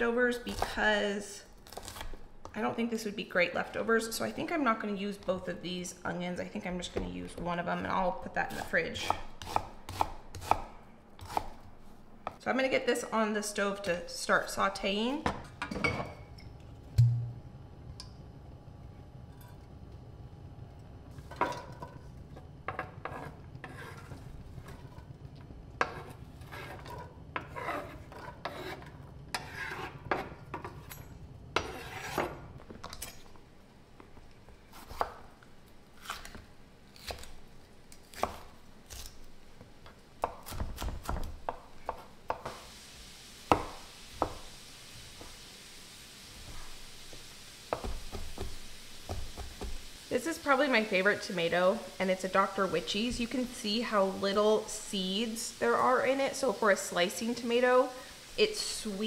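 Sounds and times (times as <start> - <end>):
low steady hum: 0.0 - 42.4
knife chopping on wooden board: 9.1 - 11.6
spatula scraping in pan: 22.7 - 25.1, 25.8 - 31.0, 31.6 - 32.5.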